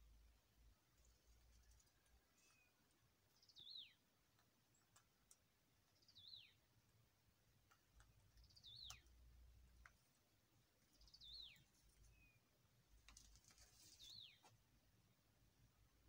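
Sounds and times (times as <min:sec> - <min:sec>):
small bird chirping: 0:00.6 - 0:14.7
faint clicks: 0:04.3 - 0:06.0, 0:07.6 - 0:10.2.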